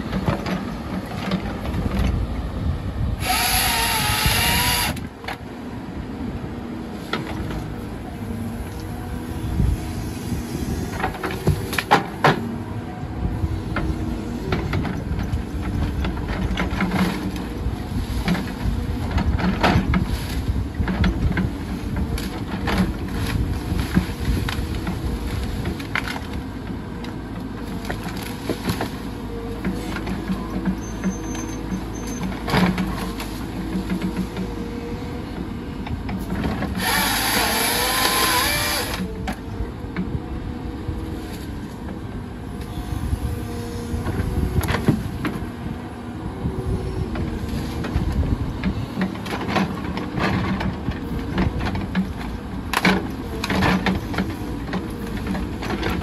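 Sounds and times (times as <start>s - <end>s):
excavator diesel engine: 0.0s - 56.0s
branches snapping and crackling: 22.2s - 26.4s.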